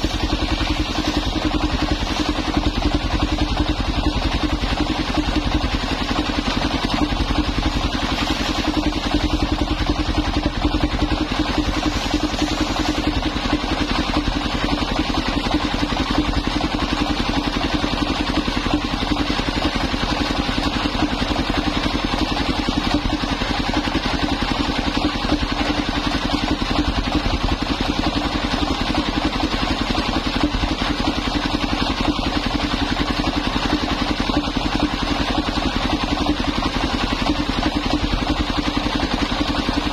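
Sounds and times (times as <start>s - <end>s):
circular sawmill blade ripping wood: 0.0s - 3.8s, 5.1s - 18.6s.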